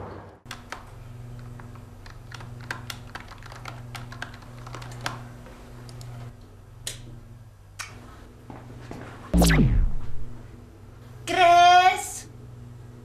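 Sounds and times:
computer keyboard typing: 1.4s - 5.2s
low steady hum: 9.4s - 10.6s.

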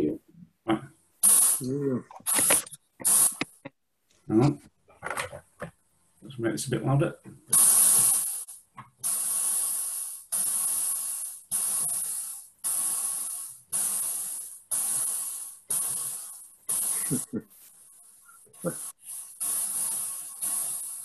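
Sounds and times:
synthesizer hissing chuffs: 1.2s - 3.6s, 7.5s - 17.5s, 18.2s - 21.0s.

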